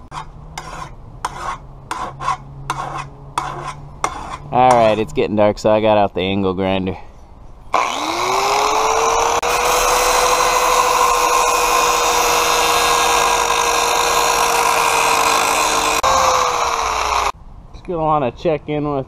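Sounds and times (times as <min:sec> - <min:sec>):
angle grinder whine: 0:07.7 - 0:17.4.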